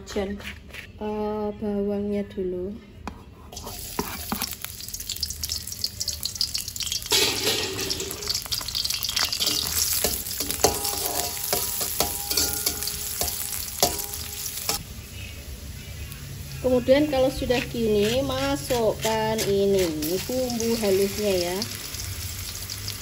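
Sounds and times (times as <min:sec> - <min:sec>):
spatula scraping wok: 0:03.3 - 0:04.8, 0:06.8 - 0:14.8, 0:16.6 - 0:21.7
shallots sizzling in hot oil: 0:03.6 - 0:23.0.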